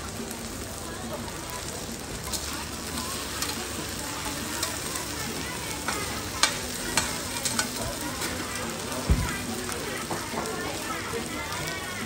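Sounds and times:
food sizzling in oil: 0.0 - 12.0
tongs clinking against pan: 5.9 - 7.8.

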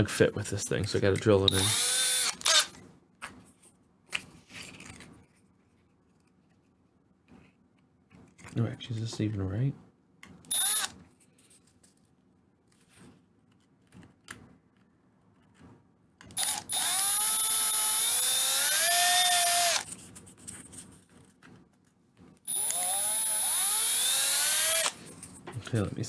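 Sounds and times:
electric drill spinning: 1.5 - 2.7, 10.5 - 11.0, 16.3 - 19.9, 22.5 - 25.0.

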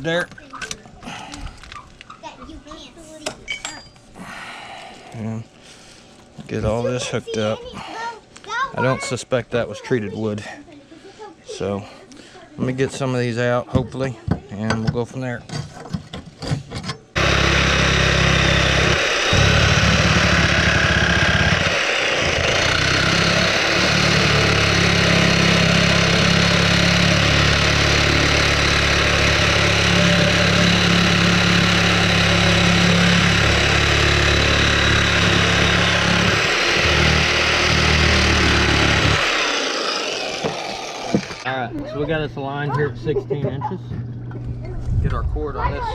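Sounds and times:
reciprocating saw cutting nails: 17.2 - 41.4.

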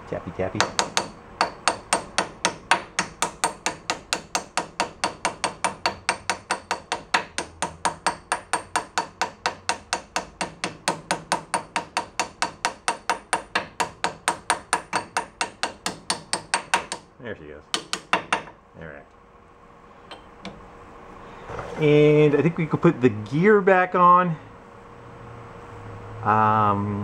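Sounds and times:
small hammer tapping metal: 0.6 - 17.1, 17.7 - 18.6.

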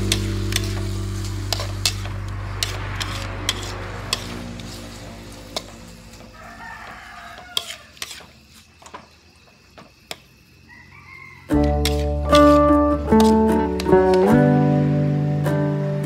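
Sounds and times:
guitar music: 0.0 - 5.8, 11.5 - 16.0
shrimp and vegetables frying in a wok: 0.0 - 8.5, 11.8 - 16.0
metal spatula scraping a pan: 0.0 - 8.7, 11.5 - 14.3
rooster crowing: 5.9 - 8.0, 10.6 - 11.7.

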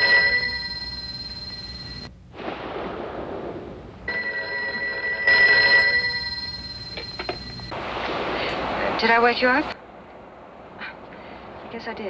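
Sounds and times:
telephone ringing: 0.0 - 2.1, 4.1 - 7.8
rushing noise: 6.0 - 11.6.

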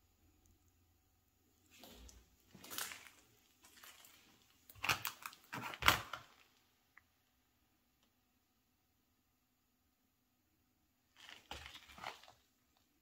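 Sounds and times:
crunching and crackling: 1.7 - 6.7, 11.1 - 13.0.

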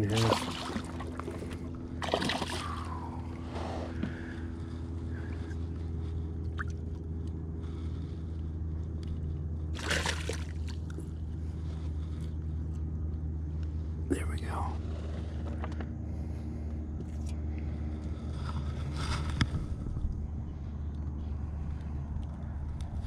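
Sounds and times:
fish splashing in water: 0.0 - 3.2, 9.8 - 10.9
low motor hum: 0.0 - 23.0.

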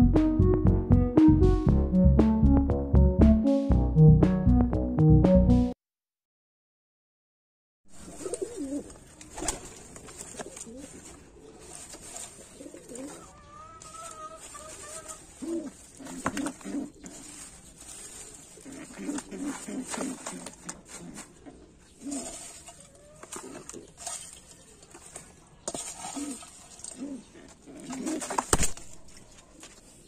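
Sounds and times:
pigeons cooing: 8.0 - 24.0, 26.0 - 28.5.

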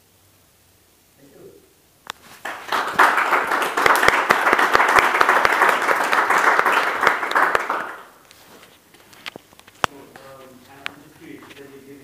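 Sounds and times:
audience applauding: 2.4 - 8.2
loud close hand claps: 2.4 - 8.2.

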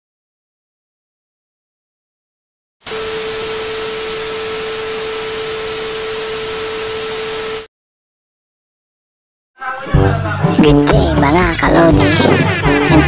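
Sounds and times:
television static hiss: 2.9 - 7.7.

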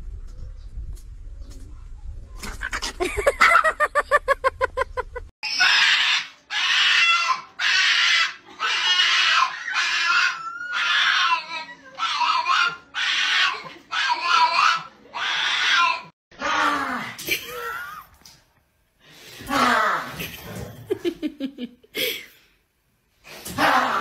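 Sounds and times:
dog yelping: 5.4 - 16.1
small dog shrill squealing cries: 5.4 - 16.1.

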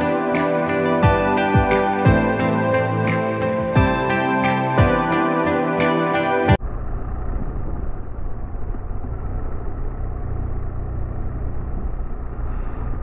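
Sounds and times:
music: 0.0 - 6.6
motorcycle engine and road noise: 6.6 - 13.0.

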